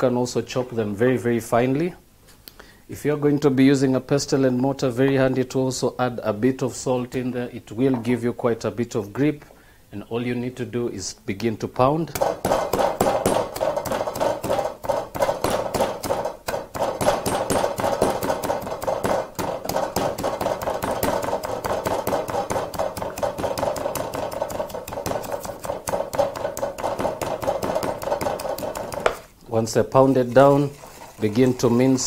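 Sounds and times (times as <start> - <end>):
pestle pounding in wooden mortar: 12.1 - 29.4.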